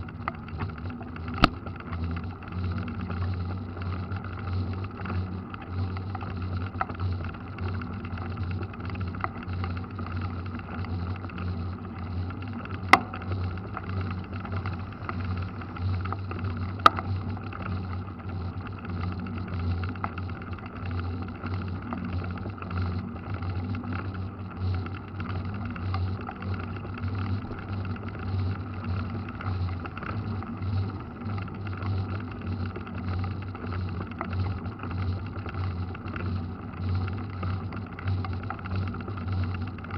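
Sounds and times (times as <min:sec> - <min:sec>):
bike tyres rumbling on wet road: 0:00.0 - 0:39.9.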